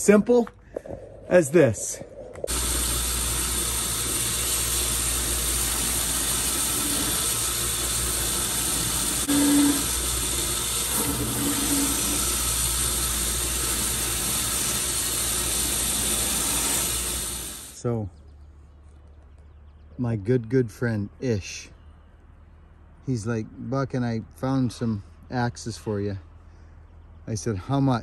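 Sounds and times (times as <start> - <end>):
belt grinder grinding boot sole: 2.5 - 17.8.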